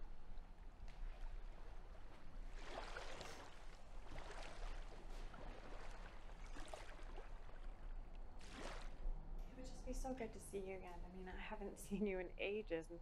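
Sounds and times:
water lapping over pebbles: 1.1s - 9.0s.

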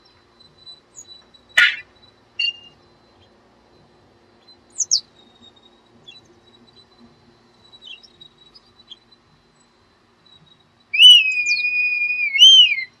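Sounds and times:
kite whistled call: 1.6s - 2.8s, 11.0s - 13.0s.

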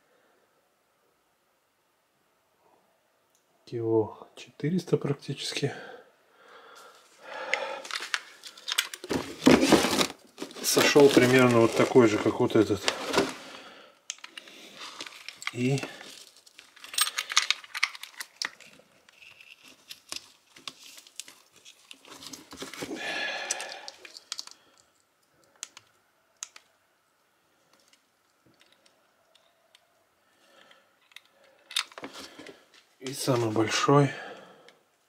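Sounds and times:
frozen fish being handled: 7.7s - 13.7s.

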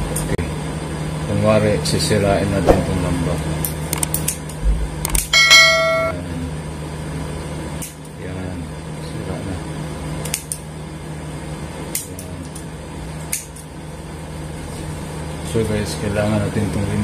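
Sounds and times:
low hum: 2.6s - 3.4s.

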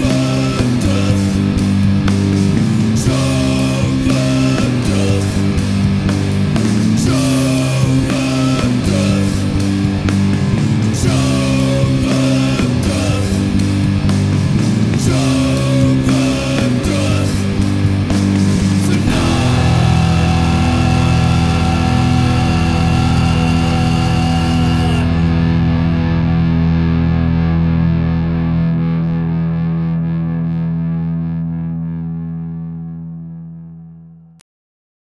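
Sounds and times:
distorted guitar chord ringing: 0.0s - 33.8s
drum hits: 18.0s - 24.2s.

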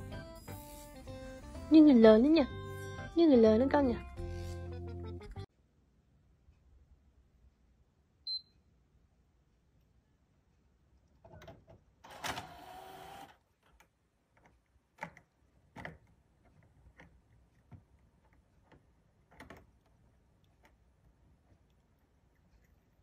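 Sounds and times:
faint clicks and taps: 13.6s - 23.0s.

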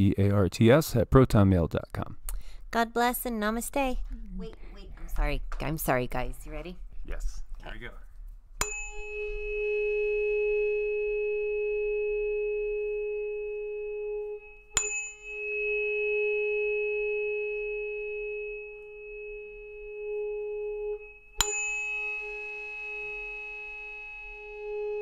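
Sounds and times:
bell ringing: 8.6s - 12.7s, 14.3s - 19.9s, 20.9s - 25.0s.

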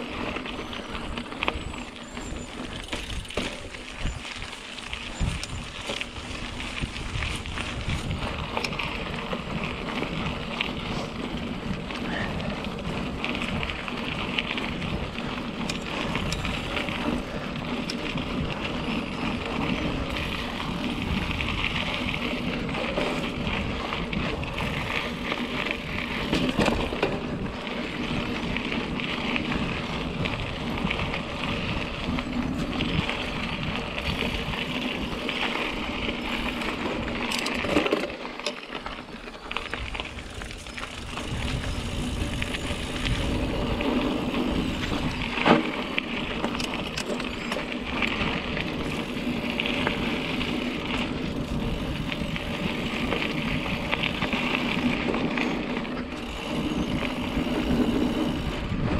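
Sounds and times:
bike tyres rumbling on dirt trail: 0.0s - 58.9s
bike rattling knocks: 26.0s - 27.3s.

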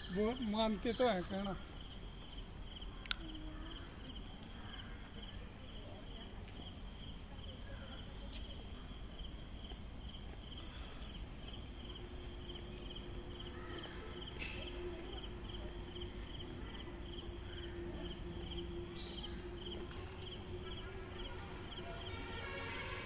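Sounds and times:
insects chirping: 0.0s - 23.0s
faint low hum: 10.2s - 23.0s.

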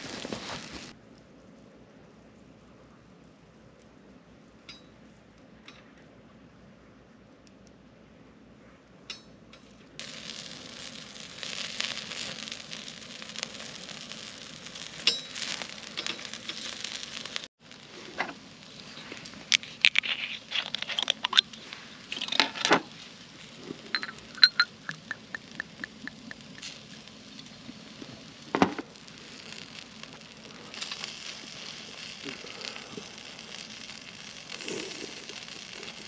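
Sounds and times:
meat sizzling on charcoal grill: 0.0s - 1.0s, 10.0s - 36.0s.

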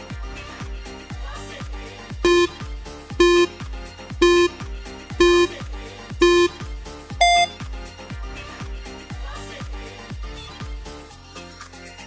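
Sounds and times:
timer beeps: 2.2s - 2.6s, 3.2s - 3.6s, 4.2s - 4.6s, 5.2s - 5.6s, 6.2s - 6.6s, 7.2s - 7.6s.

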